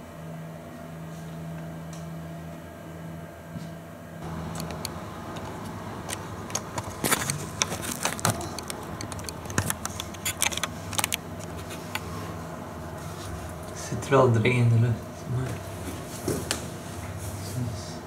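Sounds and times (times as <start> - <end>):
fingers clicking on camera body: 4.5 - 12.0.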